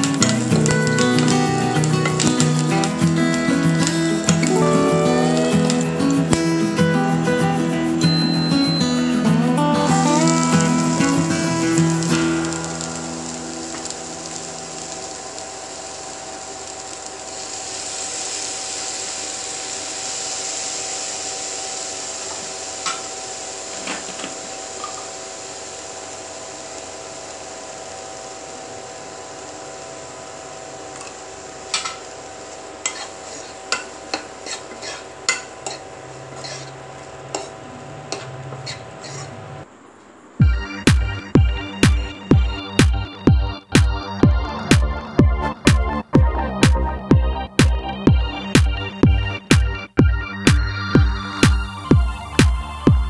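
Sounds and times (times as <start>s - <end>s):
vegetables sizzling in a pan: 0.0s - 39.3s.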